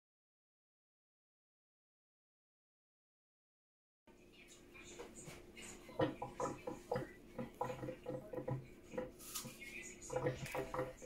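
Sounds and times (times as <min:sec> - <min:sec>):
faint voices: 0:04.1 - 0:11.0.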